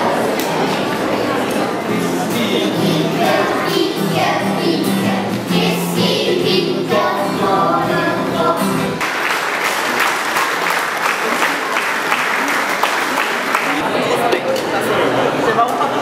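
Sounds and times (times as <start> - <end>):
children's choir singing: 0.0 - 13.5
audience applause: 9.0 - 14.0.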